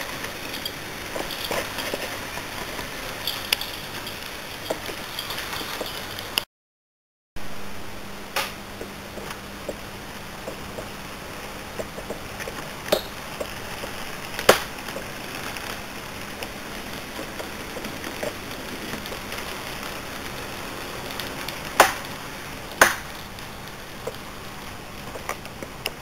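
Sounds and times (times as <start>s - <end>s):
model train rolling on track: 0.0s - 6.4s.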